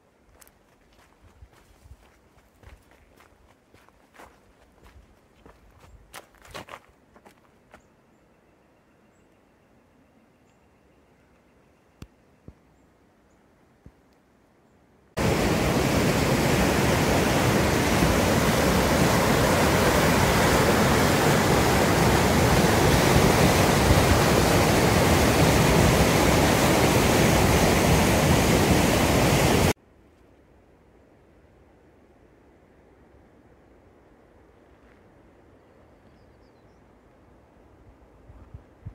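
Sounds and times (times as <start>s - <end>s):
river rapids rushing over rocks: 15.2s - 29.8s.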